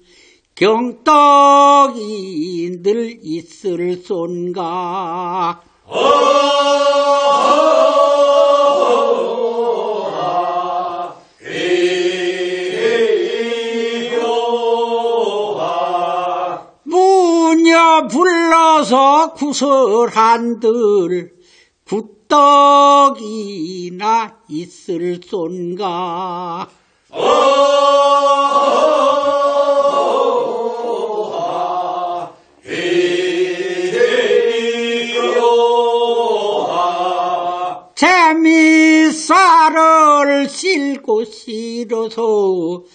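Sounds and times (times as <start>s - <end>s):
group of singers chanting in unison: 5.8s - 16.9s, 26.4s - 38.0s
lead singer with vibrato: 21.9s - 42.9s.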